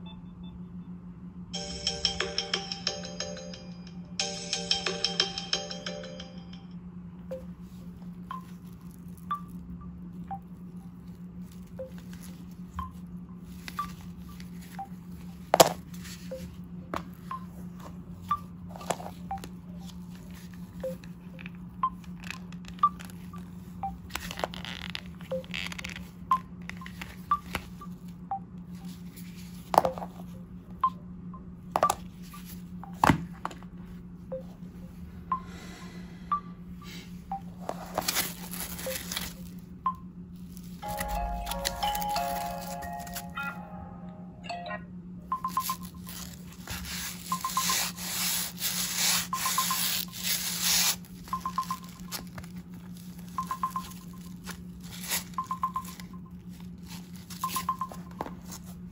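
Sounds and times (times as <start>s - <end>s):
steady low hum: 0.0s - 58.9s
soft ringtone notes: 1.6s - 6.7s, 7.3s - 33.0s, 40.8s - 58.7s
plastic rustles: 38.0s - 39.6s.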